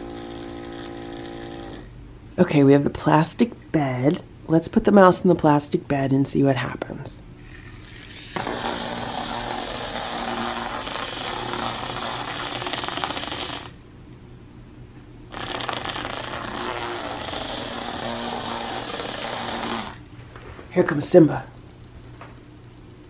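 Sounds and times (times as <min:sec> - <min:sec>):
toy motor buzzing on plastic: 0:00.0 - 0:01.9, 0:07.4 - 0:13.8, 0:15.3 - 0:20.0.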